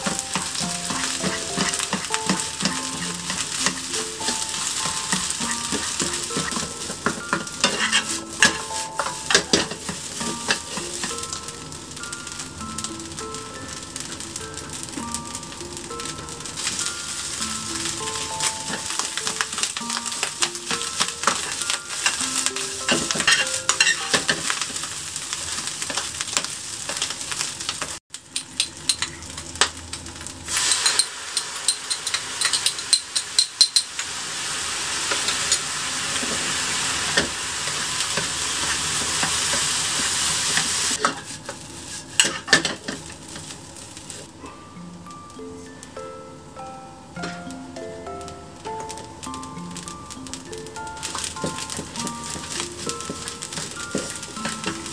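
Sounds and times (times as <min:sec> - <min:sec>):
utensil scraping a pan: 0:00.0 - 0:11.1, 0:18.1 - 0:24.8, 0:35.1 - 0:43.1
light background music: 0:00.0 - 0:25.9, 0:42.2 - 0:54.9
food sizzling in a frying pan: 0:00.0 - 0:46.0, 0:47.1 - 0:54.9.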